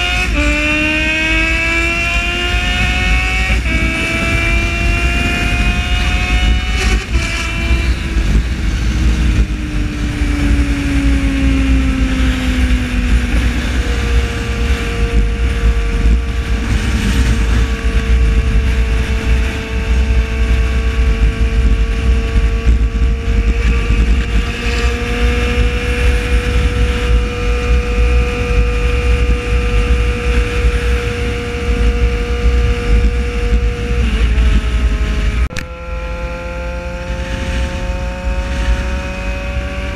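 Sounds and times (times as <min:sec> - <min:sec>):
motorcycle engine cruising: 0:00.0 - 0:39.9
wind rumble on microphone: 0:00.0 - 0:39.9.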